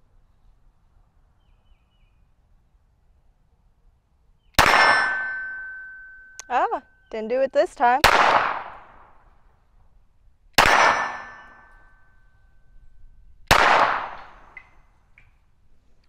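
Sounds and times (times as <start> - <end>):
pistol shots: 4.6 - 5.4, 8.0 - 9.2, 10.6 - 11.8, 13.5 - 14.6.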